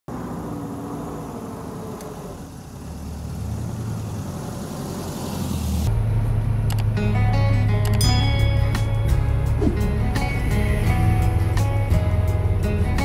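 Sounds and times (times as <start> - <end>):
vehicle engine running at low speed: 0.1 - 8.0.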